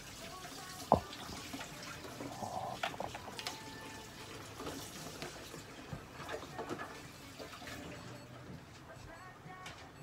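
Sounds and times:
running splashing water: 0:00.0 - 0:08.0.

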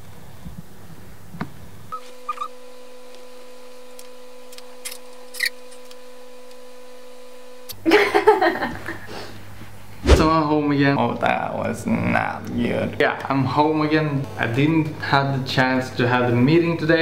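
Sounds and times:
low hum: 0:10.0 - 0:10.5.

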